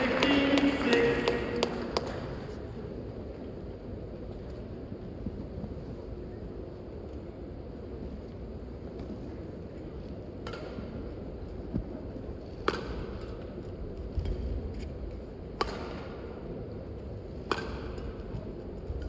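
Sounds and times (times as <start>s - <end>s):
low hum of hall: 0.0s - 19.0s
racket hitting shuttlecock: 10.4s - 11.0s, 12.6s - 13.5s, 15.5s - 16.3s, 17.4s - 18.3s.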